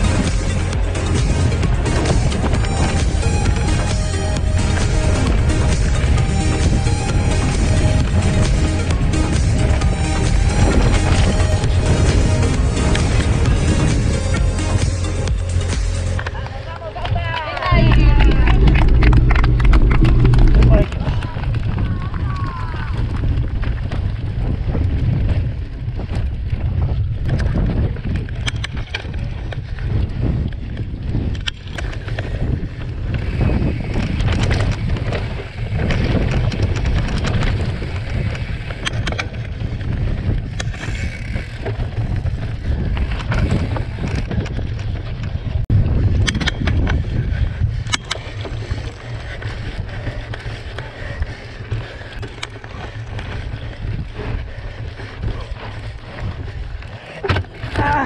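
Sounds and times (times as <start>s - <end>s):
mountain bike rumbling on dirt: 0.0s - 58.0s
wind noise on microphone: 0.0s - 58.0s
bike rattling clicks and knocks: 15.8s - 58.0s.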